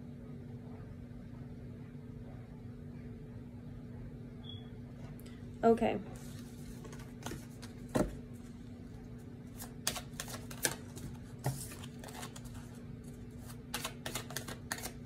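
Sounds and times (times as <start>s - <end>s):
faint steady hum: 0.0s - 15.0s
cards being shuffled: 6.2s - 8.5s, 9.5s - 15.0s.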